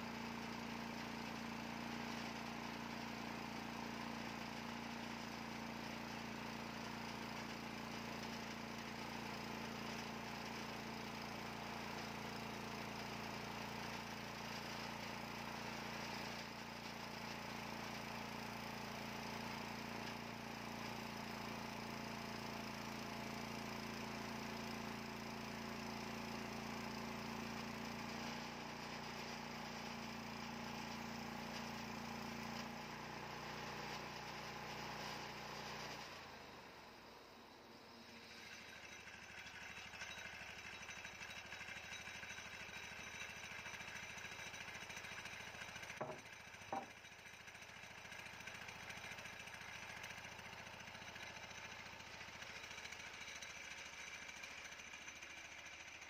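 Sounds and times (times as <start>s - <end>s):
bandsaw cutting log: 19.3s - 36.2s, 38.0s - 47.3s.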